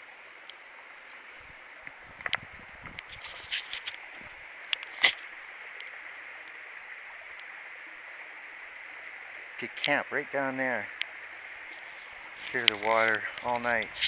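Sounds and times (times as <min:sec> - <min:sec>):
creek running over rocks: 0:00.0 - 0:14.0
clicks and rustles near microphone: 0:01.8 - 0:05.3, 0:11.7 - 0:14.0.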